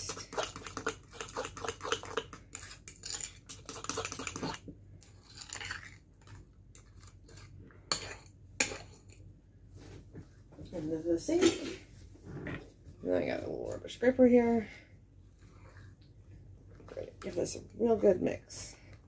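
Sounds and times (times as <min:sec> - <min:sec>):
fork whipping sauce in bowl: 0:00.0 - 0:06.0.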